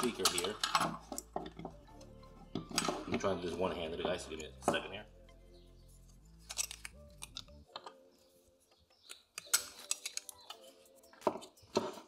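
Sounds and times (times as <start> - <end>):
plastic parts clicking and tapping: 0.0 - 3.4, 6.4 - 8.0, 8.7 - 12.0.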